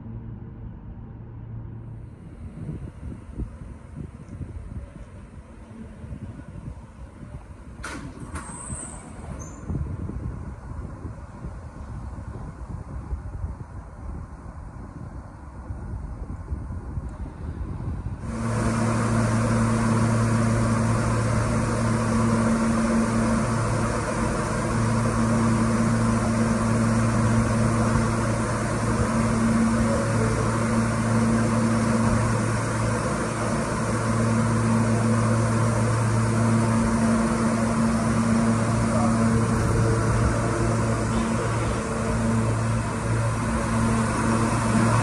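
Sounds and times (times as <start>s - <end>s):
subway train humming: 0.0s - 45.0s
low two-note drone: 18.2s - 45.0s.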